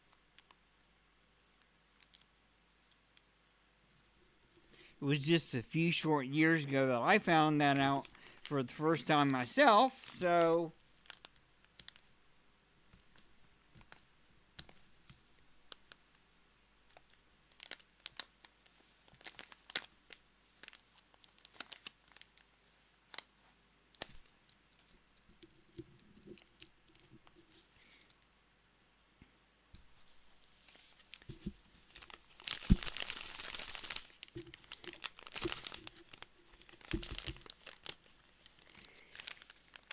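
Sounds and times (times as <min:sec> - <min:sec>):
packaging pouch crinkling: 0:07.2 - 0:12.1, 0:16.9 - 0:18.3, 0:19.1 - 0:22.5, 0:30.7 - 0:39.9.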